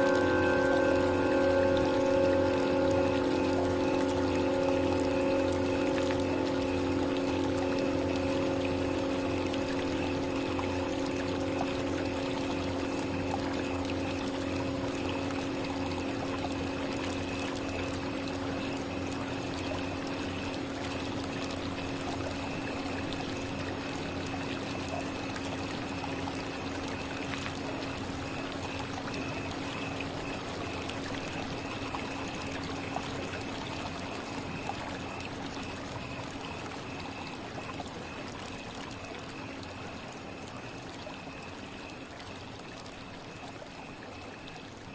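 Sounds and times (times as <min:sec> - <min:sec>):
singing bowl ringing: 0:00.0 - 0:27.2.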